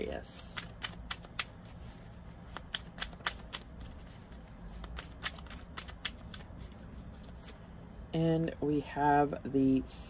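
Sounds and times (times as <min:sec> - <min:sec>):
cards being shuffled: 0:00.4 - 0:07.8.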